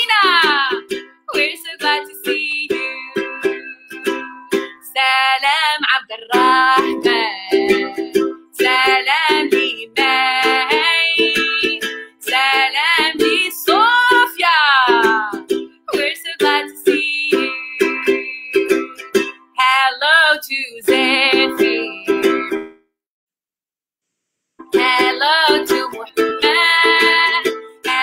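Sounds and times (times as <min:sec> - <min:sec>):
woman singing: 0:00.0 - 0:22.6, 0:24.7 - 0:28.0
ukulele strumming: 0:00.0 - 0:22.8, 0:24.6 - 0:28.0.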